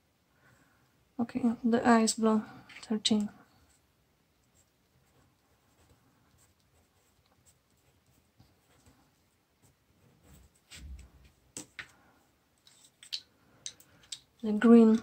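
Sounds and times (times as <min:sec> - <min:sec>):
pencil scratching on paper: 0:04.5 - 0:08.9.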